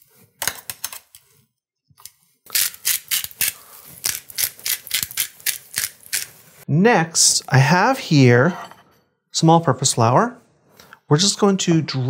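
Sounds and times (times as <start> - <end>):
pepper grinder crunching: 2.5 - 6.4.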